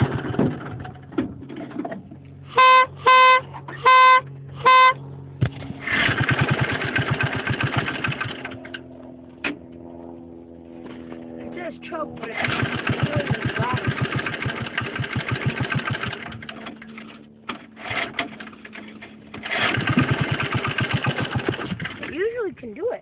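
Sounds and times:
go-kart engine sputtering: 0.0s - 3.9s, 5.5s - 8.8s, 12.1s - 22.3s
vehicle horn short beeps: 2.5s - 5.0s.

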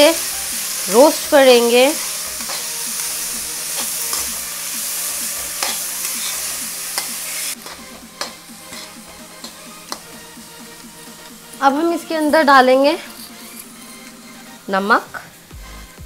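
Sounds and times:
vegetables sizzling in oil: 0.0s - 15.6s
spatula scraping a pan: 1.0s - 10.1s, 11.1s - 14.6s.

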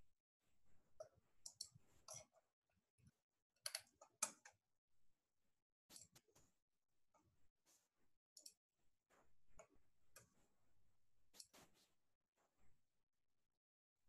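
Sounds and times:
faint irregular clicks: 1.0s - 2.4s, 8.4s - 8.6s.

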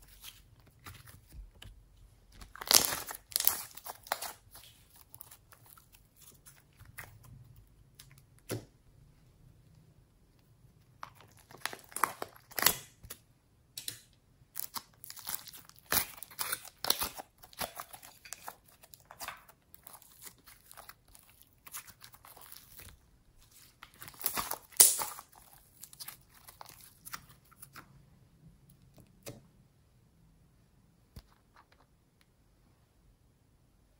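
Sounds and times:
slime crackling and popping: 2.3s - 7.3s, 11.0s - 13.1s, 14.6s - 27.8s.

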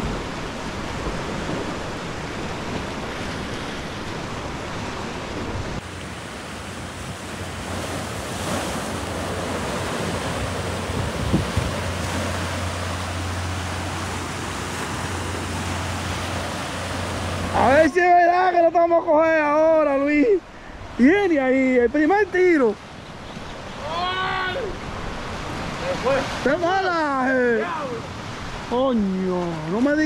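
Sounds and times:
surf breaking on rocks: 0.0s - 20.2s
wind buffeting microphone: 6.9s - 14.2s.

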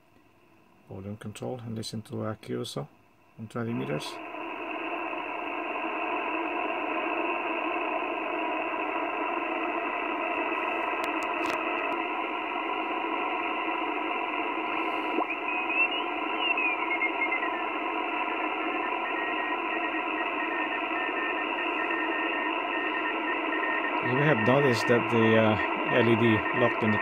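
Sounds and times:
radio static hiss: 0.8s - 27.0s
sliding whistling tone: 13.7s - 24.2s.

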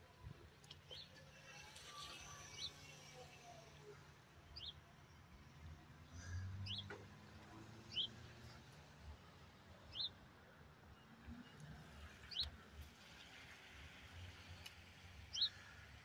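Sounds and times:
bird chirping: 7.9s - 8.2s, 9.9s - 10.1s, 15.3s - 15.6s.

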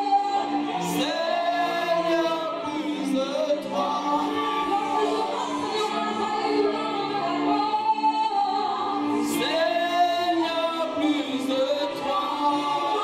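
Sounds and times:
woman singing into a microphone: 0.0s - 1.8s, 2.6s - 13.0s.

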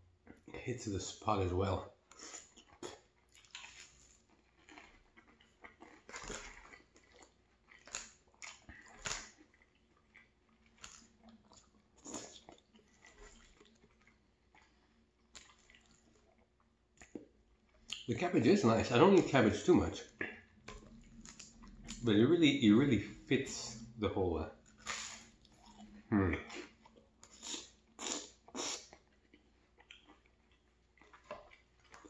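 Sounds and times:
quiet chewing: 2.0s - 22.2s, 24.5s - 32.0s
short food crunches: 2.2s - 16.2s, 24.7s - 32.0s.

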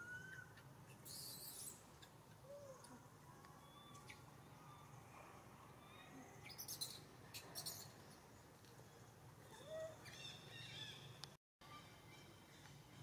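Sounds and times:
bird chirps: 0.0s - 2.2s, 3.6s - 4.9s, 5.8s - 8.0s.

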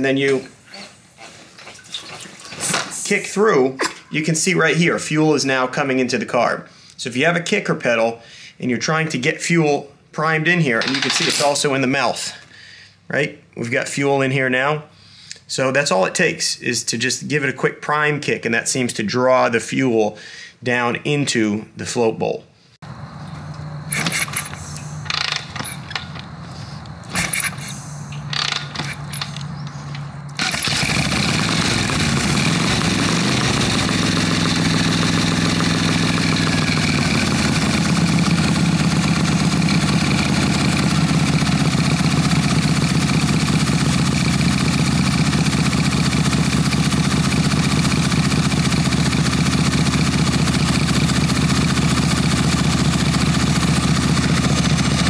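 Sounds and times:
motorcycle kick-start kicks: 10.8s - 11.6s, 23.3s - 26.4s, 27.1s - 55.0s
motorcycle engine idling: 28.0s - 55.0s.

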